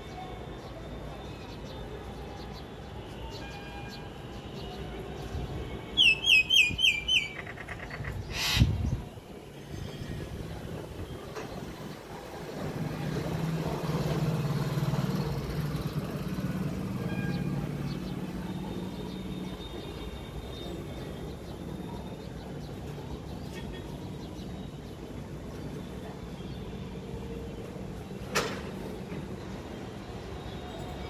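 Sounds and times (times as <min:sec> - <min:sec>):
street background noise: 0:00.0 - 0:31.0
vehicle engine hum passing: 0:12.3 - 0:18.8.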